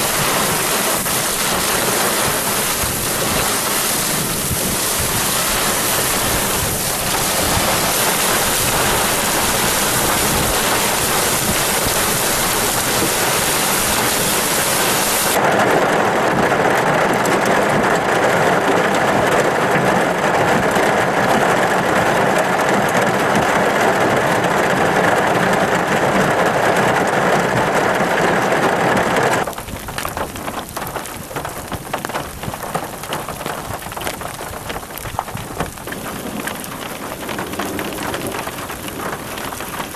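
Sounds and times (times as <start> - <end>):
raindrop impacts: 0.0 - 16.4, 29.4 - 39.9
heavy rain: 0.0 - 39.9.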